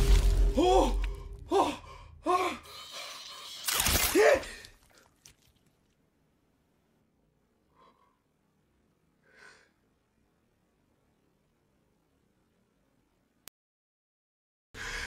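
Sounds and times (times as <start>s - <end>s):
low rumble: 0.0s - 2.7s.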